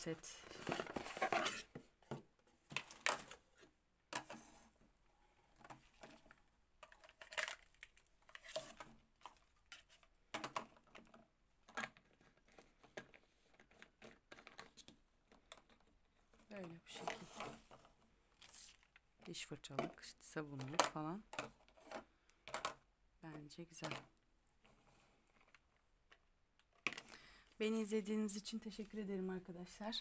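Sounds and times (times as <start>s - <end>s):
cardboard box rustling: 0.5s - 1.8s
plastic pieces clicking and knocking: 5.6s - 16.0s, 18.9s - 24.2s, 25.3s - 27.2s.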